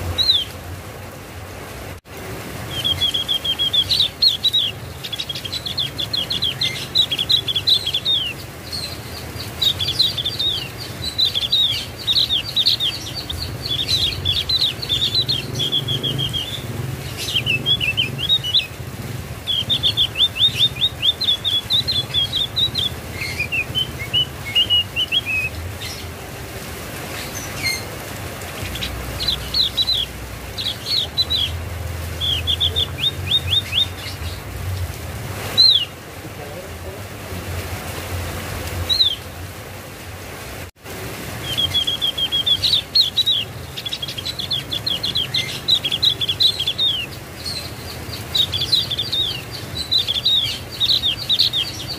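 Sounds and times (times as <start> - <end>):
bird chirping: 2.7 - 18.8, 19.4 - 26.1, 27.1 - 34.8, 41.4 - 51.9.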